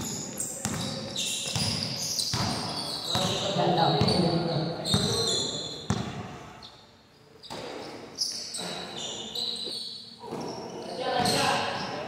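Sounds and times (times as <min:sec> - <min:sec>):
basketball bouncing on concrete: 0:00.6 - 0:00.9, 0:01.5 - 0:03.4, 0:05.9 - 0:06.2
high squeaks: 0:07.4 - 0:11.6.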